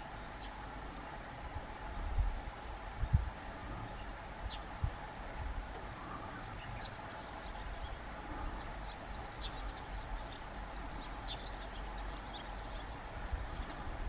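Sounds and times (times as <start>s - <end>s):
small birds chirping: 0.0s - 0.8s, 1.9s - 5.0s, 5.7s - 14.0s
steady low rumble: 0.0s - 14.0s.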